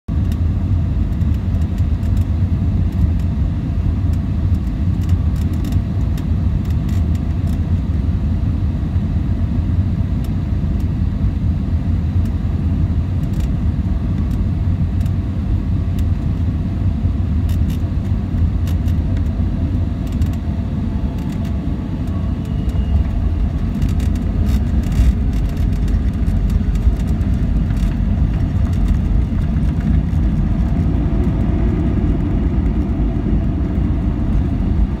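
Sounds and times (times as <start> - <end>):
airplane engine rumble in cabin: 0.1 - 35.0.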